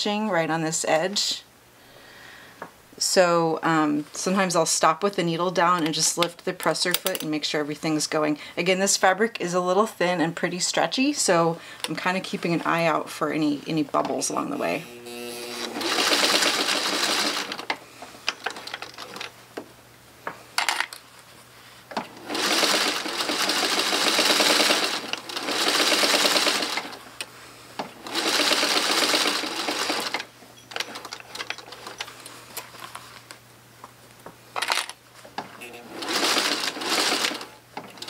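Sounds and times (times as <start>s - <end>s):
sewing machine stitching: 14.9s - 17.7s, 22.0s - 27.0s, 28.0s - 32.0s, 35.6s - 38.0s.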